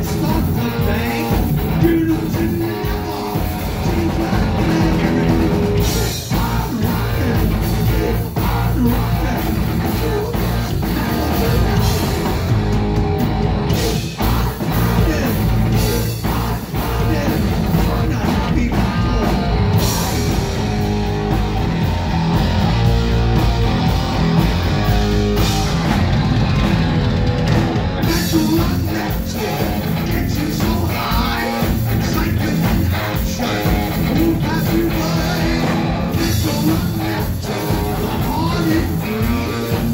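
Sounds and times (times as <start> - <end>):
man singing: 0.0 - 12.4, 13.7 - 20.2, 28.0 - 39.9
bass guitar: 0.0 - 39.9
drum kit: 0.0 - 39.9
electric guitar: 0.0 - 39.9.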